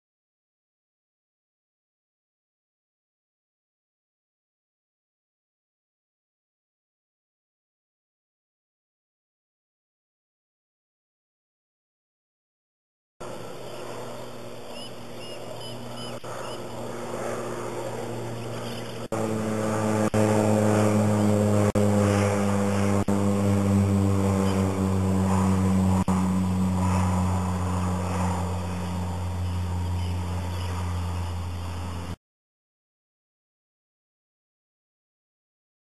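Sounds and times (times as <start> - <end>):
propeller aircraft drone: 13.2 - 32.2.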